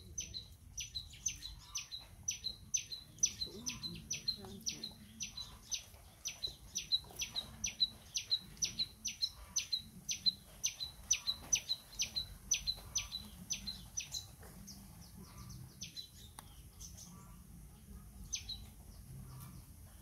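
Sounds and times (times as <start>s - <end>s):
small bird calling: 0.0s - 17.4s.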